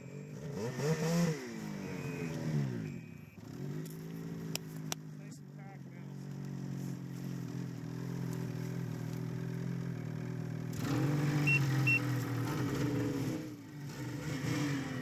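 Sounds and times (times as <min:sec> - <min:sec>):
snowmobile engine idling: 0:00.0 - 0:15.0
short high beeps: 0:01.6 - 0:03.4, 0:11.4 - 0:12.1.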